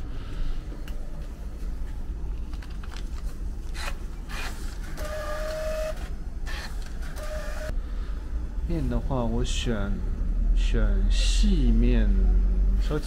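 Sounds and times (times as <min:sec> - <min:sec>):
street traffic rumble: 0:07.7 - 0:13.0.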